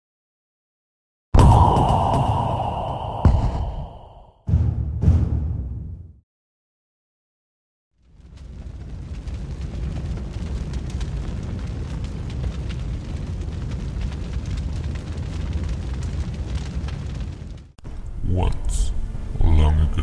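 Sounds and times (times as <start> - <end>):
deep rumble with crackling: 8.0 - 18.2.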